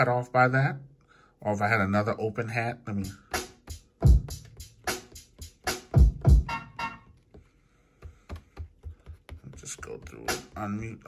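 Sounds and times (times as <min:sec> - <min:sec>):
drum sampler hits: 0:04.0 - 0:07.0.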